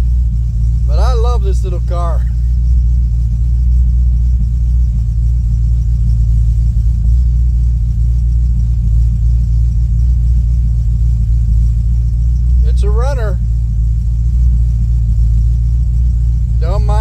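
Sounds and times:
car engine idling: 0.0s - 17.0s.

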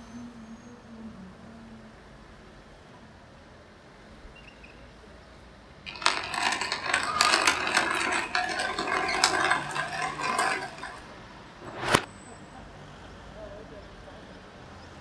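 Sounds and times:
clatter of small knocks and rattles: 5.9s - 12.1s.

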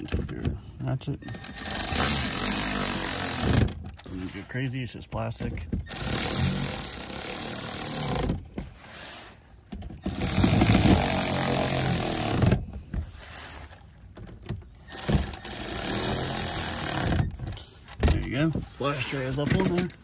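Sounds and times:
cordless electric ratchet running: 1.3s - 3.7s, 5.9s - 8.3s, 10.1s - 12.6s, 14.9s - 17.2s.

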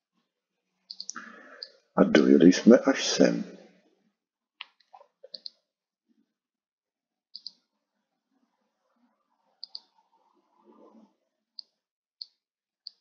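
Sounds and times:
mouse button clicking: 7.4s - 7.6s, 9.6s - 9.9s.

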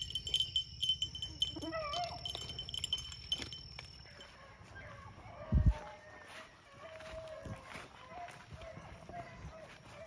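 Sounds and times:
dog baying faintly: 4.1s - 10.0s.

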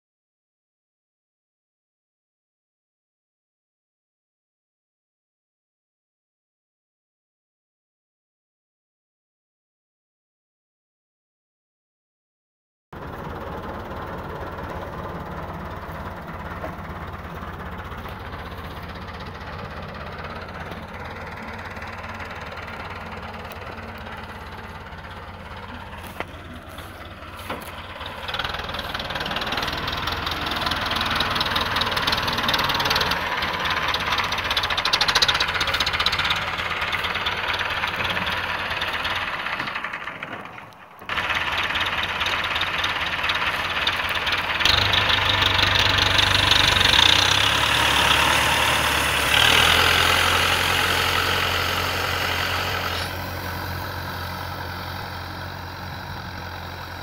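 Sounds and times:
tractor diesel engine running: 13.0s - 57.0s.

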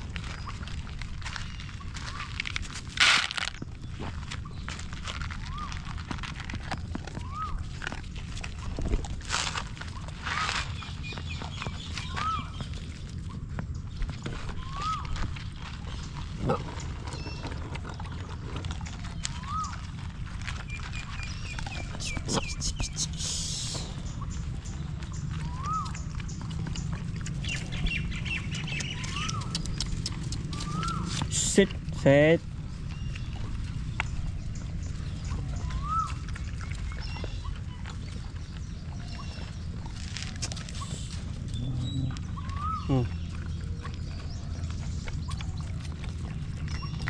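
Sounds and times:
steady low rumble: 0.0s - 47.0s
puppy whimper: 7.2s - 7.7s, 25.4s - 26.0s, 29.0s - 31.3s, 35.5s - 36.3s, 40.6s - 44.4s
puppy lapping water: 32.9s - 41.4s.

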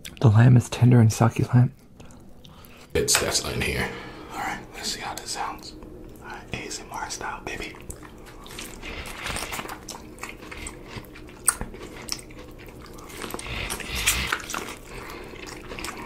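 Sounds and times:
chewing: 1.8s - 2.9s, 7.6s - 16.0s.

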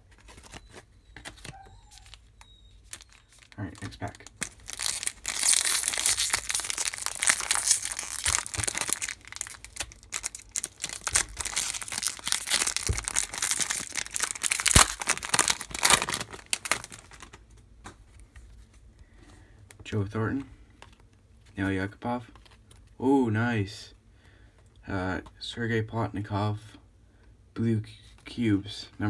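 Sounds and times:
foil wrapper crinkling and tearing: 1.9s - 17.4s.

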